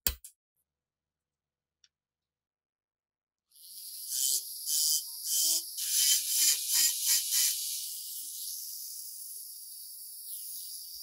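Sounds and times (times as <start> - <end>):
rotary tool grinding metal: 3.5 - 11.0.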